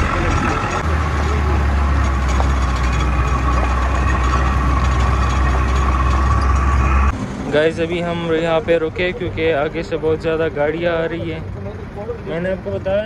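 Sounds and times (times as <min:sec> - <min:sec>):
jeep engine droning: 0:00.0 - 0:13.0
thin steady whine: 0:00.0 - 0:13.0.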